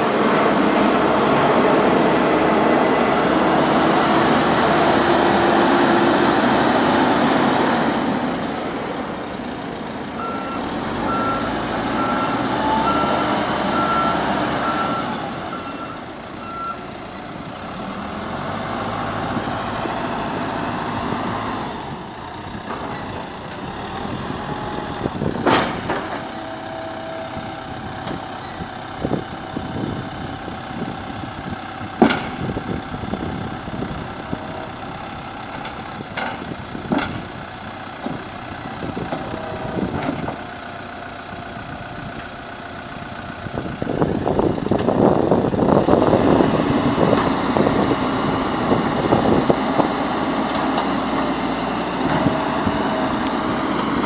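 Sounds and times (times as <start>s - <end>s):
backhoe loader engine running: 0.0s - 54.0s
reversing alarm beeping: 10.2s - 16.8s.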